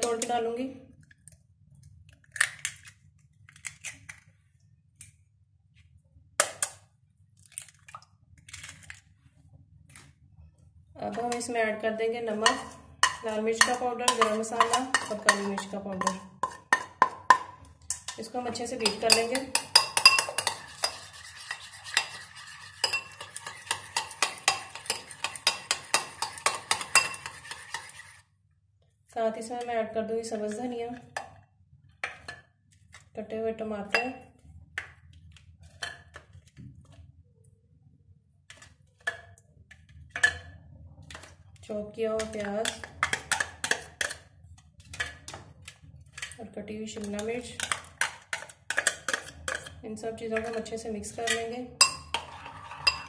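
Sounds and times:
spoon tapping eggshells: 0:12.4 - 0:28.2.

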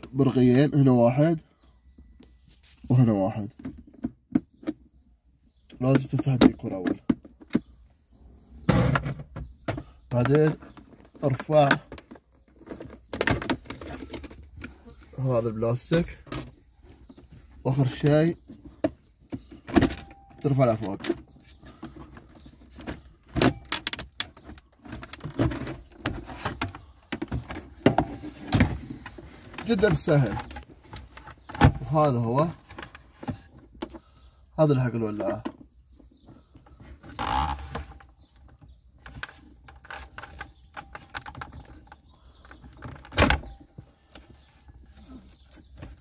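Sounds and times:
light plastic rattling: 0:15.8 - 0:46.0.

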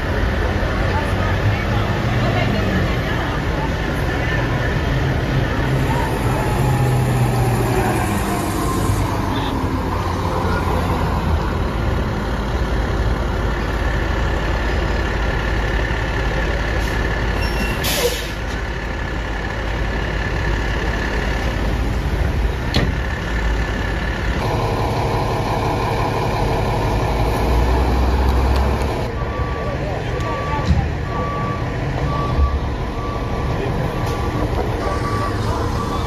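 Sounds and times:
diesel engine running: 0:00.0 - 0:36.0
fire engine idling: 0:08.0 - 0:36.0
air brake hiss: 0:16.8 - 0:18.4.

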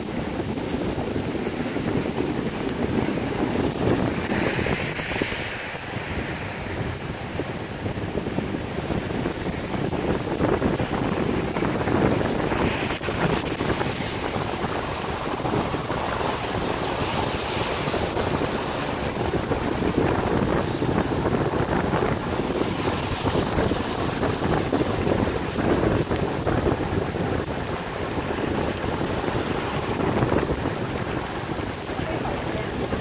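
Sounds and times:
wind buffeting microphone: 0:00.0 - 0:33.0.

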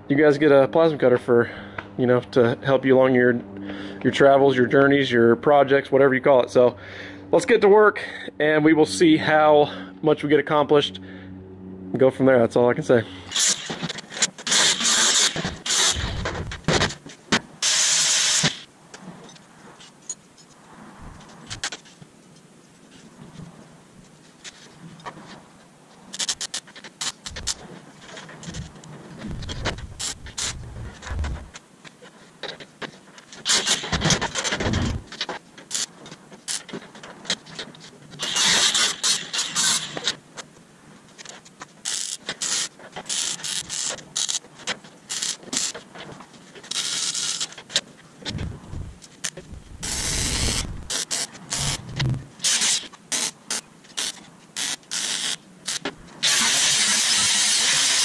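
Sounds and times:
hissing bursts: 0:13.3 - 0:16.7, 0:17.6 - 0:18.7, 0:26.2 - 0:27.6, 0:29.2 - 0:31.5, 0:33.4 - 0:35.1, 0:38.2 - 0:40.1, 0:48.3 - 0:58.0.

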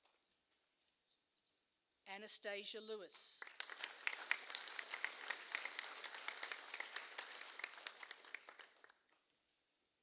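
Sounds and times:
audience applauding: 0:03.4 - 0:09.2.

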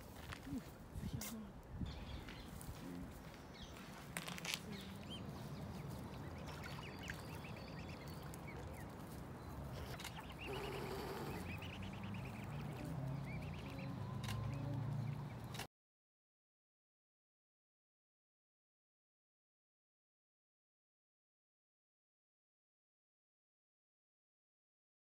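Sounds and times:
cygnets peeping: 0:04.6 - 0:15.7.

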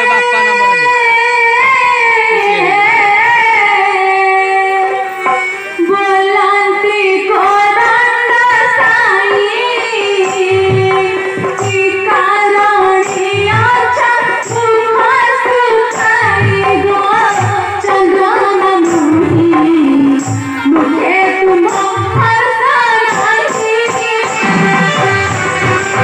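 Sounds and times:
high voice singing: 0:00.0 - 0:09.6
hand drum beats: 0:07.5 - 0:26.0.

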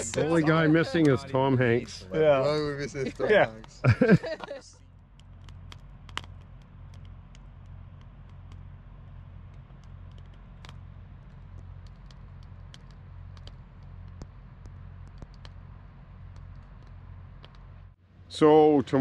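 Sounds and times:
low pulsing hum: 0:00.0 - 0:19.0
faint clicks and ticks: 0:04.8 - 0:18.0.

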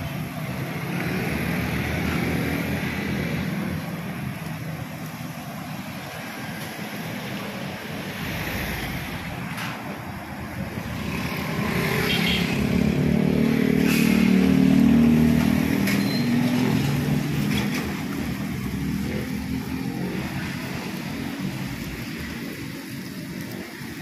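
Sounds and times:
traffic noise: 0:00.0 - 0:24.0
vehicle engine passing by: 0:10.6 - 0:22.5.

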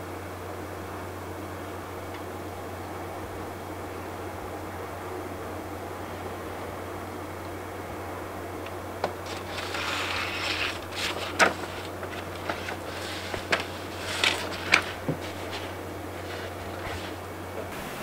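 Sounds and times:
steady low hum: 0:00.0 - 0:18.0
rustling: 0:09.0 - 0:17.4.

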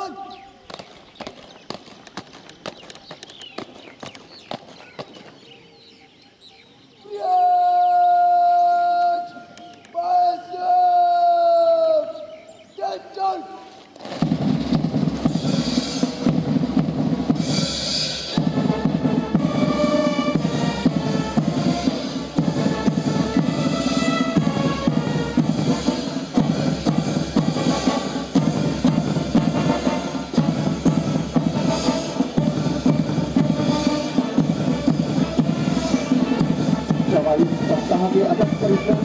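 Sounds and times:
snare drum marching beat: 0:14.0 - 0:39.0
bass drum: 0:14.2 - 0:17.7
brass melody: 0:14.2 - 0:39.0.

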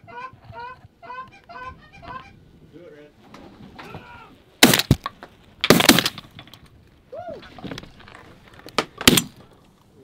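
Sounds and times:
goose honking: 0:00.0 - 0:02.4
shotgun blasts: 0:04.6 - 0:05.0, 0:05.6 - 0:06.2, 0:09.0 - 0:09.4.

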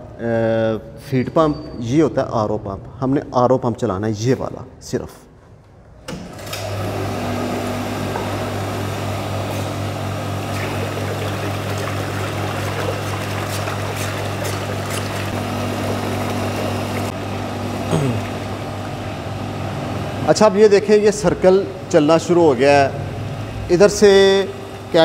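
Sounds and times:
electric pump motor hum: 0:06.1 - 0:25.0
water splashing into bucket: 0:10.3 - 0:19.2.

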